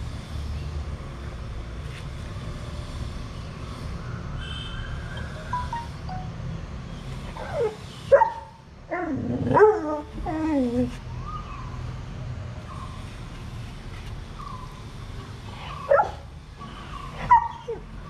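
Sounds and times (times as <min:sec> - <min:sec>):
puppy whining: 0:07.3 - 0:07.8, 0:08.9 - 0:11.6.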